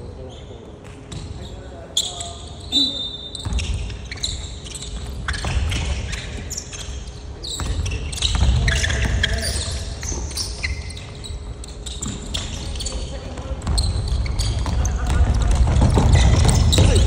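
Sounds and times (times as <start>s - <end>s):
sneakers squeaking: 0.0s - 17.0s
basketball bouncing on hardwood: 7.6s - 9.2s, 13.4s - 17.0s.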